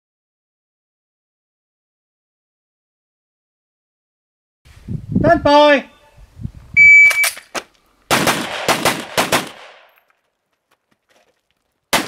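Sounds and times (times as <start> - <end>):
rifle shots with echo: 8.1 - 9.9.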